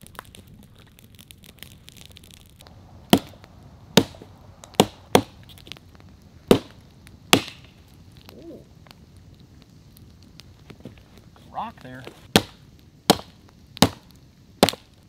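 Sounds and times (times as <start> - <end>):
axe chopping a log: 4.8 - 5.3, 7.3 - 7.6, 12.3 - 14.0, 14.6 - 14.9.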